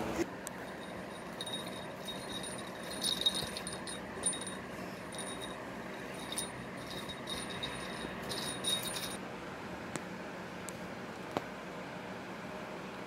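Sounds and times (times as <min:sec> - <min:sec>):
steady background whir: 0:00.0 - 0:13.0
small jingle bell jingling: 0:00.6 - 0:09.2.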